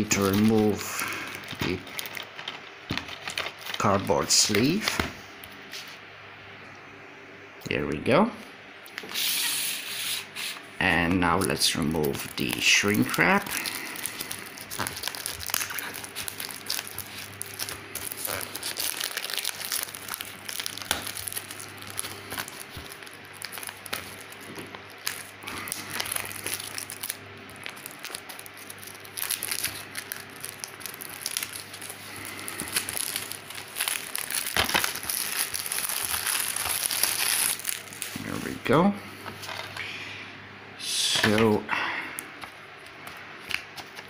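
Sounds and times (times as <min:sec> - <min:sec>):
plastic wrap crinkling: 0:00.0 - 0:05.0, 0:11.3 - 0:38.6, 0:42.4 - 0:44.0.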